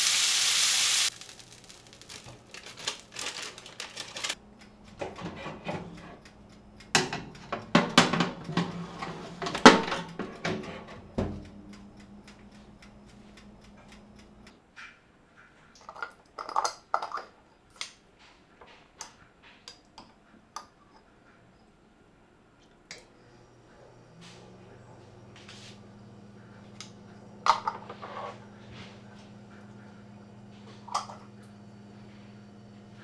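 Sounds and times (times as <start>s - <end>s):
low steady oven hum: 0.5s - 14.6s, 22.8s - 33.0s
metal tray and rack clattering: 7.0s - 11.4s
faint ticks and clicks: 11.4s - 14.6s.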